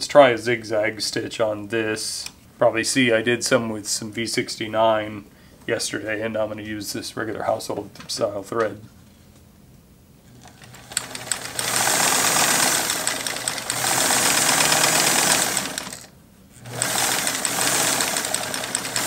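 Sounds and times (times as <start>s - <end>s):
sewing machine stitching: 10.4s - 19.0s.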